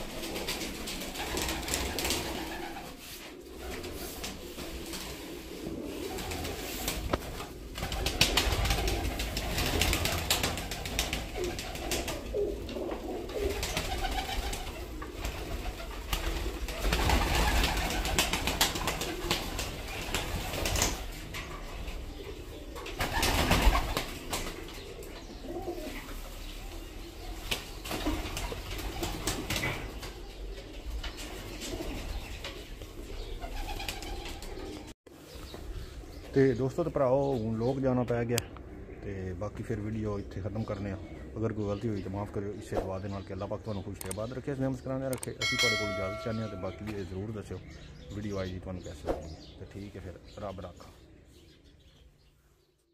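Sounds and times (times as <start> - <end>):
whooshing rushes of wings: 0.0 - 12.2, 13.4 - 21.1
wing flaps: 0.0 - 21.4, 22.9 - 25.0, 33.4 - 34.9
pigeons cooing: 0.0 - 52.4.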